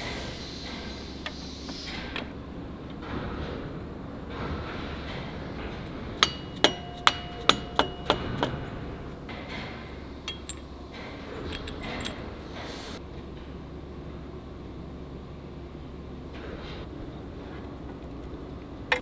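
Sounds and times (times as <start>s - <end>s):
hammer strikes on steel: 6.2s - 10.7s
faint metal clinks: 10.2s - 10.8s, 11.5s - 12.3s.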